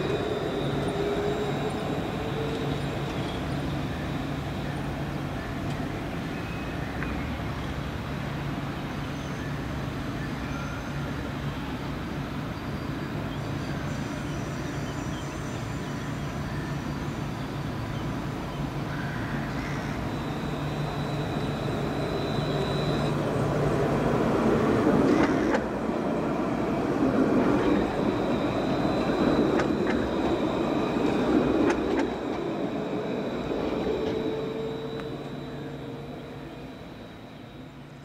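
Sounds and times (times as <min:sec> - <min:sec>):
thin high whine: 0:00.0 - 0:04.8, 0:19.6 - 0:38.0
tram wheels rumbling on rail: 0:00.0 - 0:38.0.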